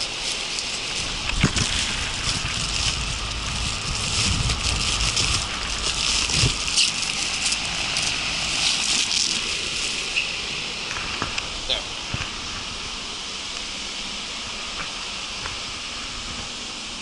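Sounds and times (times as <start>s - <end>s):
wind buffeting microphone: 0.0s - 8.6s
plastic duct crackling: 0.0s - 10.2s
air rushing through ducting: 0.0s - 17.0s.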